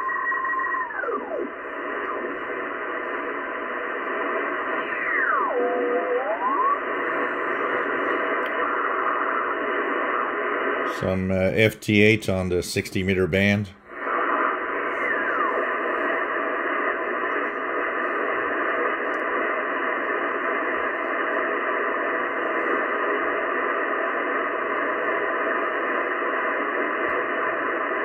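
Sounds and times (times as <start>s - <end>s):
radio band noise hiss: 0.0s - 28.0s.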